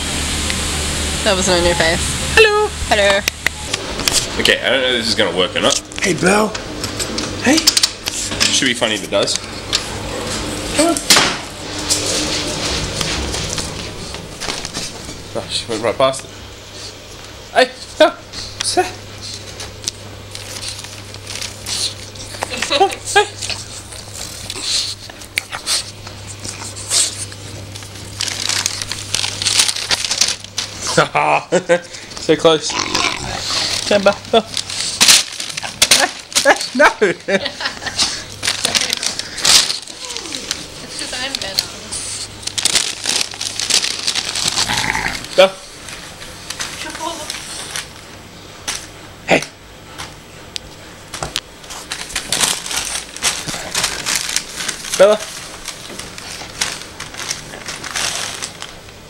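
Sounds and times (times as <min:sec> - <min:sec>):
paper bag crinkling: 0:19.4 - 0:31.1, 0:33.0 - 0:36.9, 0:37.5 - 0:48.1, 0:51.6 - 0:59.0.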